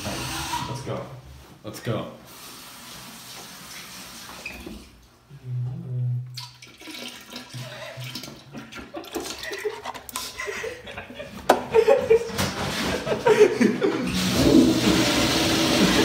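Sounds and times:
liquid pouring and splashing: 6.3 - 10.3.

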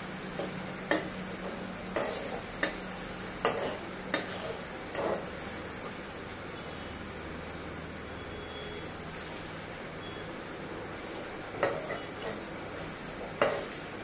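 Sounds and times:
frying sizzle: 0.0 - 14.0
spatula scraping a pan: 1.4 - 2.8, 3.4 - 5.3.

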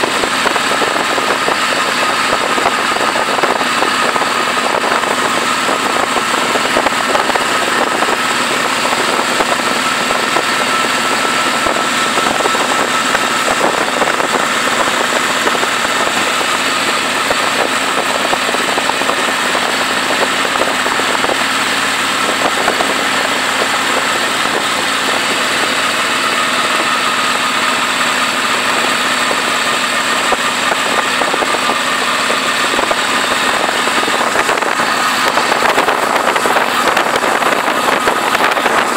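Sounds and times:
motorcycle engine and road noise: 0.0 - 38.9
wind rushing over microphone: 0.0 - 38.9.

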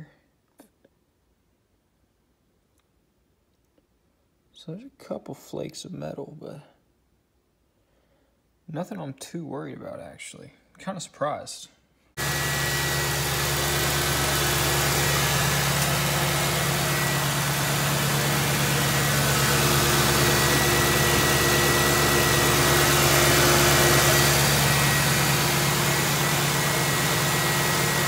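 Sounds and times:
car engine idling: 12.2 - 28.0.

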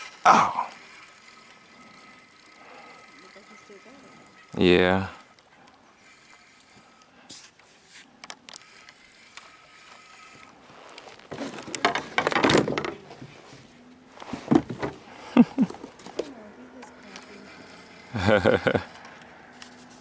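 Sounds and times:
sharp clicks of fishing gear: 5.2 - 12.9, 15.6 - 20.0
landing net rustling: 6.1 - 20.0.

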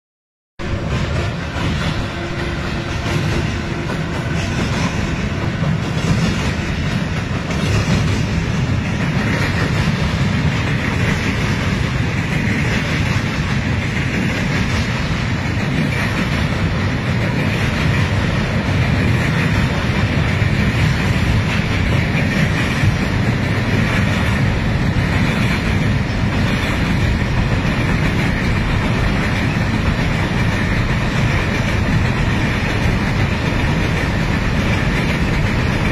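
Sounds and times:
train wheels rumbling and clattering: 0.6 - 35.9.

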